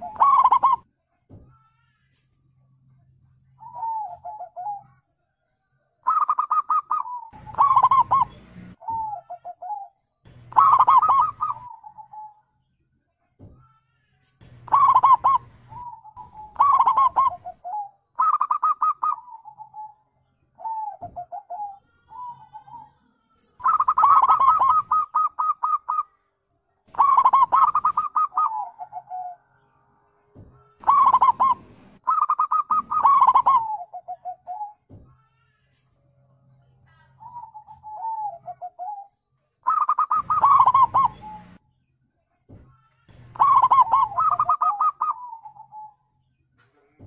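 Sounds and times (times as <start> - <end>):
dove cooing: 0.0 - 0.9, 3.6 - 5.0, 6.0 - 12.4, 14.6 - 20.0, 20.6 - 22.9, 23.6 - 26.1, 26.9 - 29.4, 30.8 - 35.5, 36.9 - 41.6, 43.2 - 46.0.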